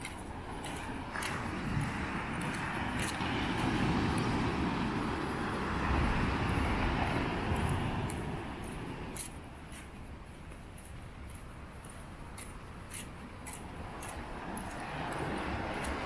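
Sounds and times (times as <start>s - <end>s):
wind buffeting microphone: 0.0s - 16.0s
breaking surf: 0.9s - 9.2s.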